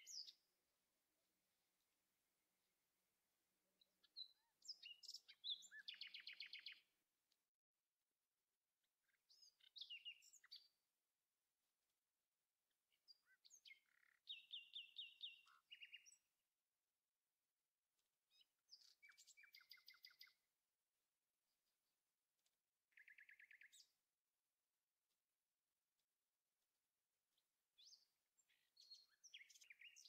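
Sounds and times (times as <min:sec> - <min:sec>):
faint songbird singing: 0:00.0 - 0:00.6, 0:03.8 - 0:07.1, 0:08.8 - 0:11.0, 0:12.6 - 0:17.0, 0:17.6 - 0:20.8, 0:21.4 - 0:24.6, 0:27.1 - 0:30.0.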